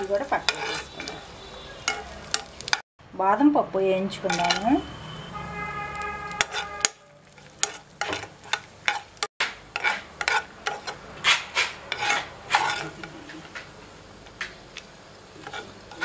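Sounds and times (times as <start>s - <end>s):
light sizzle: 0.0s - 2.8s, 3.8s - 16.0s
spoon scraping a pan: 0.0s - 2.8s, 4.2s - 4.9s, 6.2s - 13.7s, 15.4s - 16.0s.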